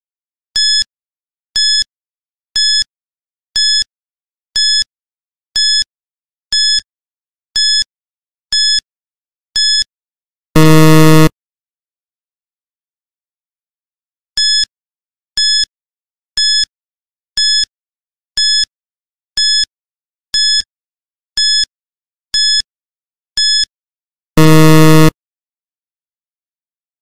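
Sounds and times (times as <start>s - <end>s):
low buzzer: 10.6s - 11.3s, 24.4s - 25.2s
short high beeps: 10.6s - 11.3s, 24.4s - 25.1s.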